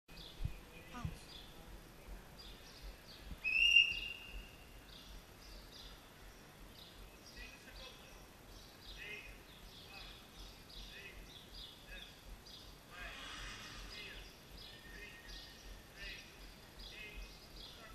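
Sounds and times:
small birds chirping: 0.1 - 17.9
loud whistle-like tone: 3.4 - 4.4.

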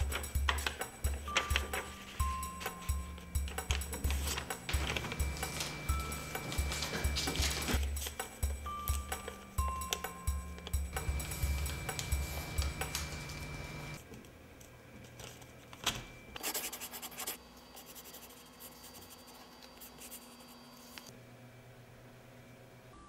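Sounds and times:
paper rustling: 0.0 - 9.4, 11.0 - 14.0
ballpoint pen scratching on paper: 16.4 - 21.1.

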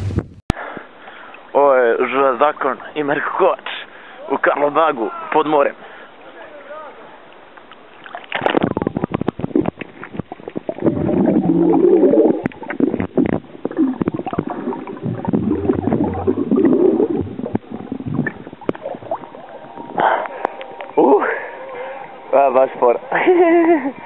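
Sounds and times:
underwater bubbling and gurgling: 7.4 - 22.3.

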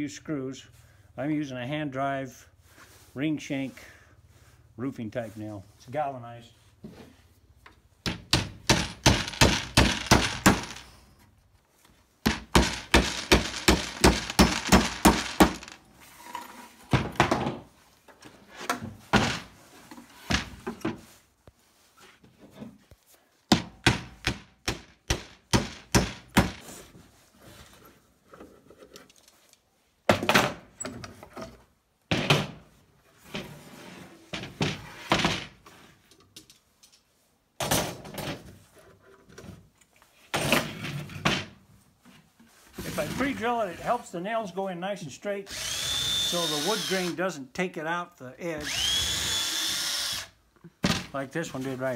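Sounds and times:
hammer driving nails into wood: 8.0 - 10.9, 12.2 - 15.8, 23.5 - 26.7.

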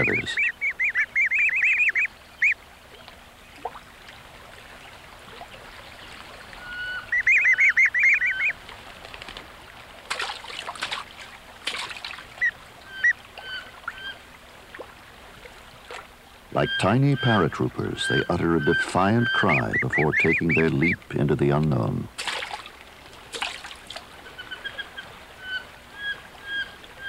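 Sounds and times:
ducklings peeping: 0.0 - 2.6, 6.0 - 8.6, 16.6 - 21.6
splashes in water: 7.8 - 16.2, 22.1 - 25.2.

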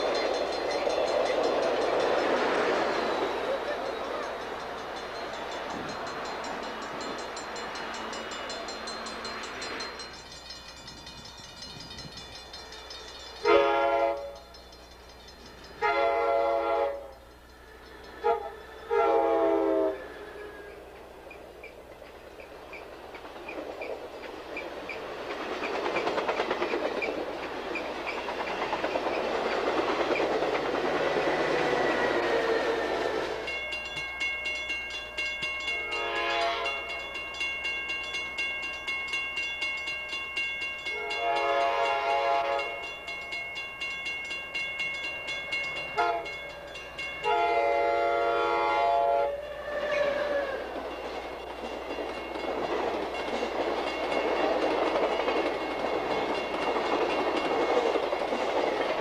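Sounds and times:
crossing bell ringing: 0.0 - 49.6, 50.4 - 59.0
train wheels on rails: 0.0 - 59.0
locomotive air horn: 13.4 - 14.5, 15.8 - 17.2, 18.2 - 20.8, 35.8 - 37.0, 40.9 - 42.8, 46.0 - 46.4, 47.2 - 50.8.

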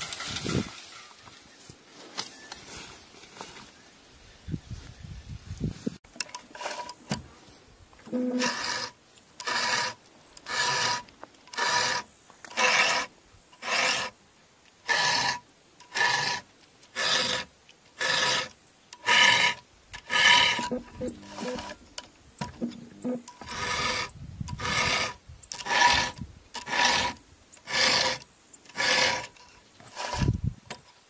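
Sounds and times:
file rasping on chainsaw chain: 6.2 - 7.0, 8.1 - 14.2, 14.8 - 21.8, 22.5 - 30.4.

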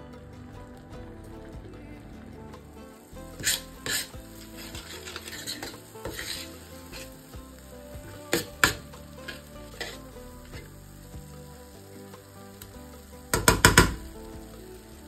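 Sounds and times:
paste sizzling in a pan: 2.7 - 15.0
spoon scraping and knocking pan: 3.3 - 10.8.

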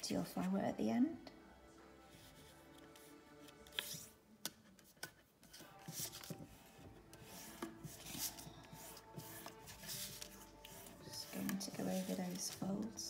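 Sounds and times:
paper rubbing and rustling: 2.2 - 13.0
paper crackles: 4.7 - 6.6, 7.3 - 13.0.

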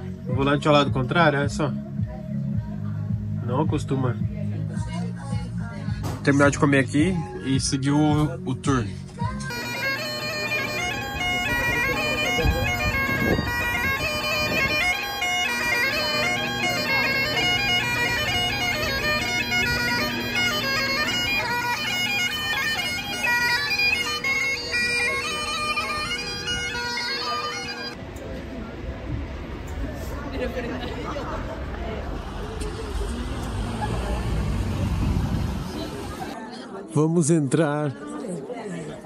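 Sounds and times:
bagpipe melody: 9.5 - 28.0
bagpipe drones humming: 9.5 - 36.4.

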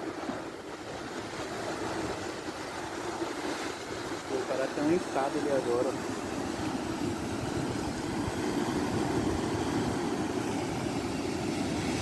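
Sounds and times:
wind buffeting microphone: 0.0 - 12.0
surf breaking on rocks: 1.4 - 12.0.

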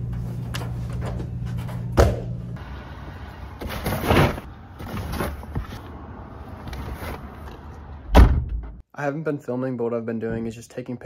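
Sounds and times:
dryers humming: 0.0 - 5.0.

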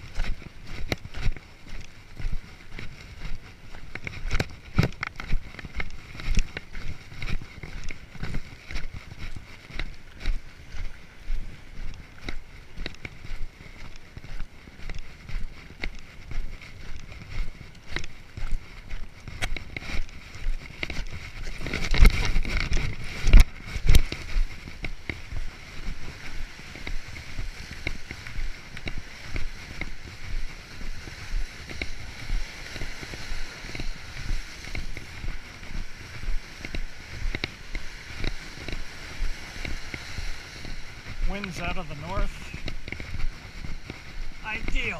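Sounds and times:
footsteps on gravel and concrete: 0.0 - 44.9
wind buffeting microphone: 0.0 - 44.9.

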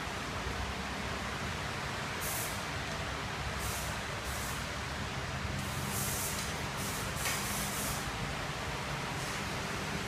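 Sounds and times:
short bursts of hiss: 2.2 - 2.7, 3.6 - 4.7, 5.6 - 8.1.

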